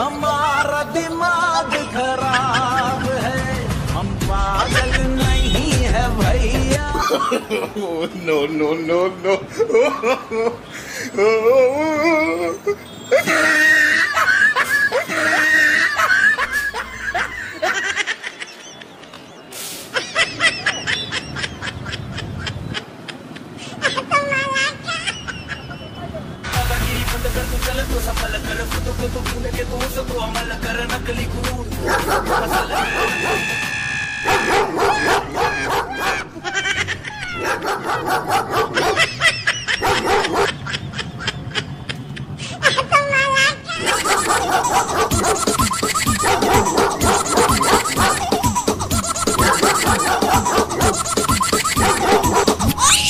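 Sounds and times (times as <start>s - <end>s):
high-pitched laughter: 1.4s - 3.2s, 4.5s - 5.4s, 6.9s - 8.2s, 9.1s - 19.2s, 19.9s - 26.2s, 31.9s - 53.0s
dog barking through speaker: 31.8s - 33.6s, 34.2s - 36.2s, 37.4s - 39.0s, 39.8s - 40.6s, 43.8s - 45.4s, 46.2s - 48.1s, 49.4s - 51.0s, 51.8s - 52.5s
short clipped giggles: 43.7s - 53.0s.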